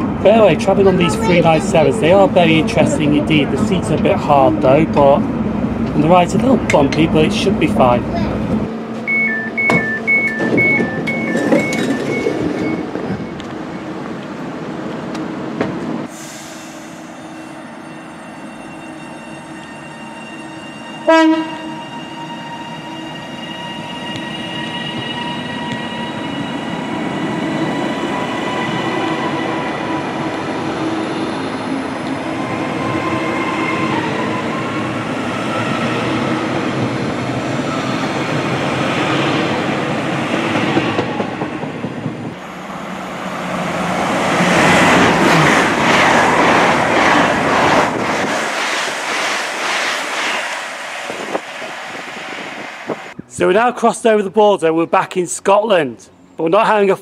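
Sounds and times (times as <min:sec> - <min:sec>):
train rushing past: 0:00.0 - 0:53.6
train horn blast: 0:21.0 - 0:21.8.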